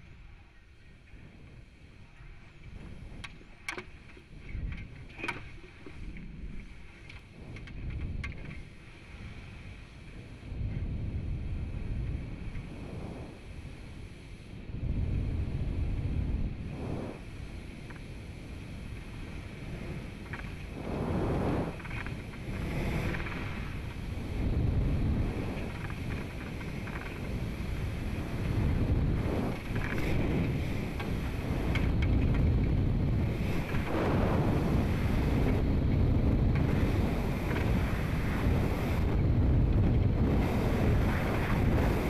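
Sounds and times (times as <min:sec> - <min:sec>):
air buffeting microphone: 0:10.2 - 0:42.0.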